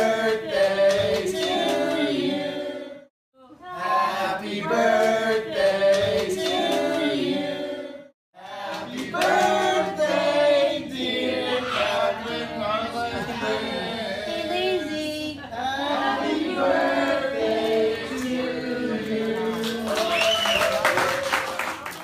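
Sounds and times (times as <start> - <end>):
group of people singing: 0.0 - 20.3.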